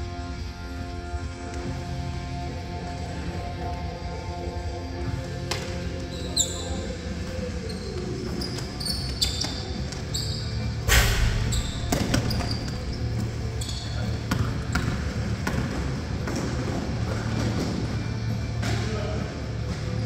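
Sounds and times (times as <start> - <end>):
sneaker squeaks: 5.5 - 18.2
players' voices echoing: 10.8 - 17.7
loud bang: 10.9 - 12.5
basketball bouncing: 10.9 - 17.6.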